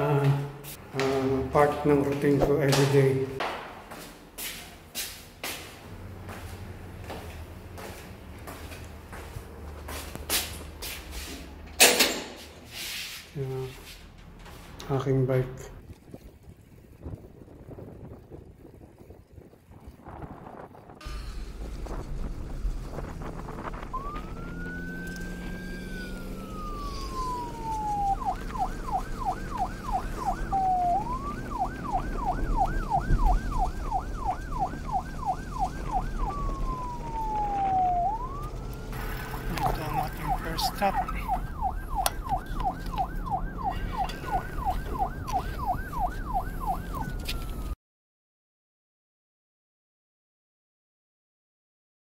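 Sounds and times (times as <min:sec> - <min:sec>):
wind rumble on microphone: 0:15.7 - 0:40.2
electronic siren wailing and yelping: 0:23.4 - 0:47.8.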